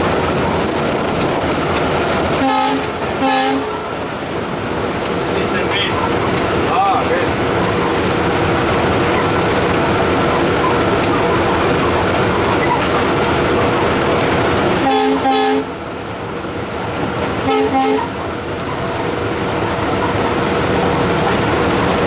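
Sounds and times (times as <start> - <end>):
locomotive cab running noise: 0.0 - 22.0
locomotive horn blasts: 2.3 - 3.9, 14.8 - 15.7, 17.4 - 18.2.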